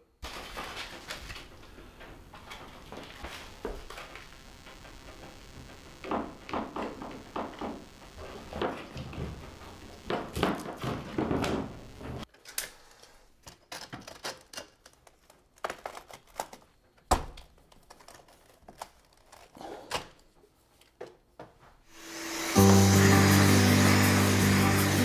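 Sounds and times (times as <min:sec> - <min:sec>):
sandpaper rustling and crinkling: 0:00.2 - 0:04.4.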